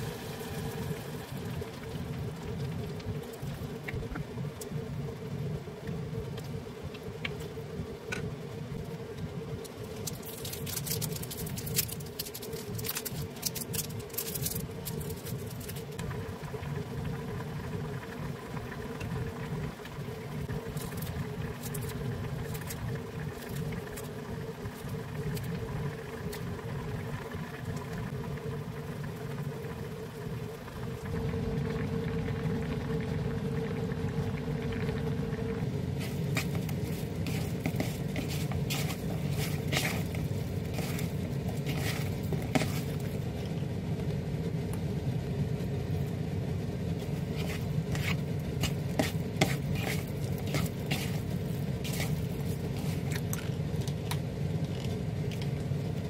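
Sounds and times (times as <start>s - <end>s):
steady low hum: 0.0s - 56.0s
stew simmering and bubbling: 0.0s - 56.0s
wooden spoon scraping pot: 35.9s - 43.4s, 47.0s - 53.4s.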